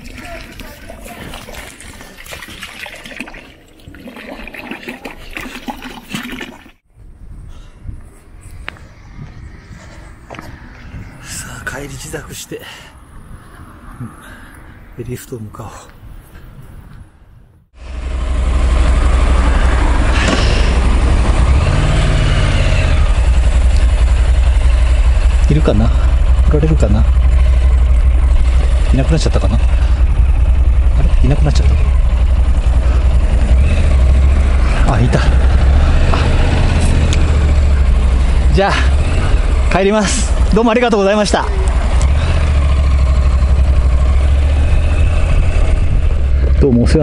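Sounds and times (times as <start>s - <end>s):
water running and splashing: 0.0s - 6.8s
motorcycle engine running: 17.8s - 47.0s.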